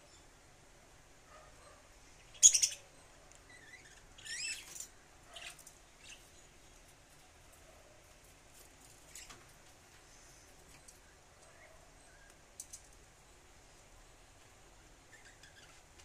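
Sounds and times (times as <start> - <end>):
budgerigar chirping: 2.4 - 2.8.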